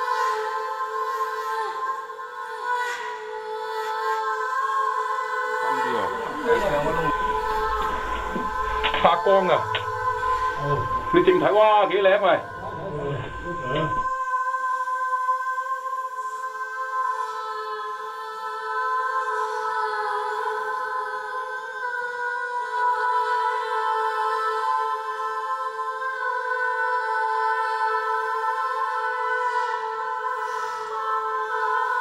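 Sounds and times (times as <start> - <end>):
sustained ambient chord: 5.4 - 14.2.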